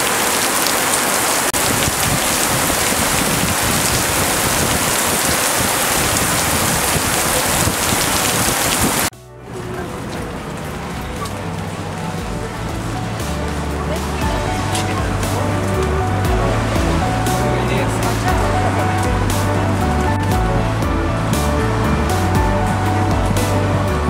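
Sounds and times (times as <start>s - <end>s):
heavy rain on wet asphalt: 0.0s - 24.0s.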